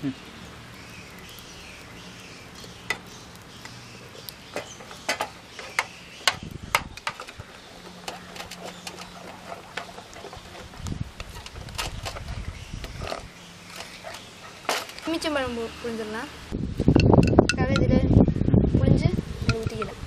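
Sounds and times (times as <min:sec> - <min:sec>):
spoon stirring batter: 0:06.9 - 0:13.0.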